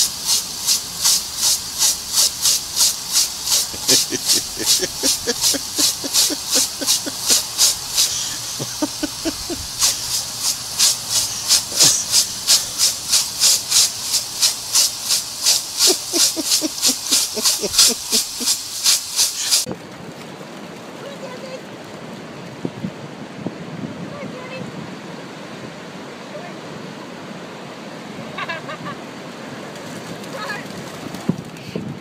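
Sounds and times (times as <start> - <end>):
sprinkler spraying in hissing pulses: 0.0 - 19.7.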